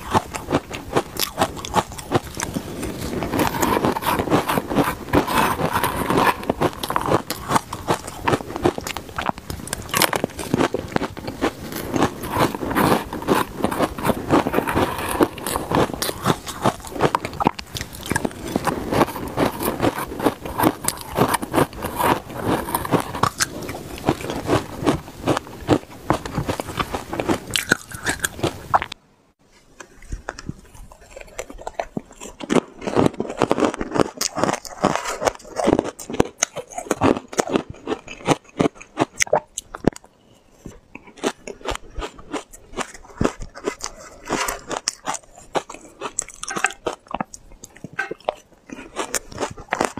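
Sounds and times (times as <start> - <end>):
crunching and chewing ice: 0.0 - 29.0, 29.8 - 49.9.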